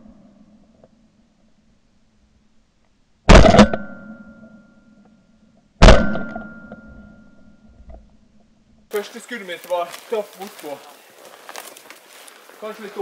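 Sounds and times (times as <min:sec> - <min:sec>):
shotgun shots: 0:03.3 - 0:04.0, 0:05.8 - 0:06.5
thin ringing tone: 0:03.8 - 0:05.5, 0:06.2 - 0:07.8.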